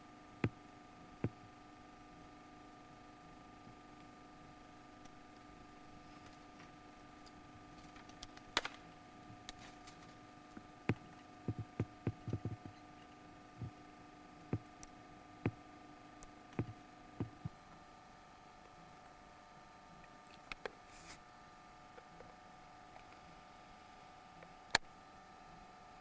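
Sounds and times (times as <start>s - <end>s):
low hum: 0.0s - 20.4s
sharp clicks and knocks: 9.4s - 12.8s.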